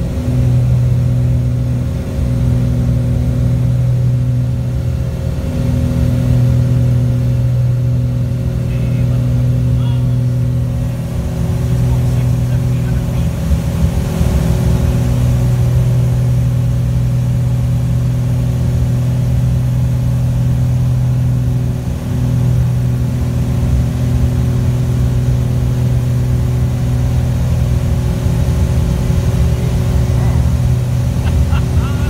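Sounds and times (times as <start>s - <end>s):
airplane engines droning: 0.0s - 32.0s.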